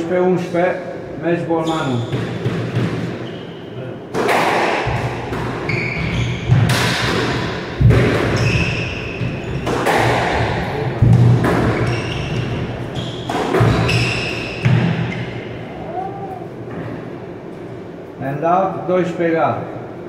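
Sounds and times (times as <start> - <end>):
squash ball struck by rackets: 2.1 - 3.2, 4.1 - 15.4.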